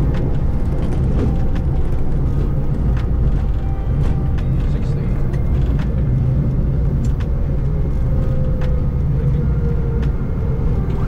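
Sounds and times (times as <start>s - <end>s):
low rumble of airliner cockpit: 0.0s - 11.0s.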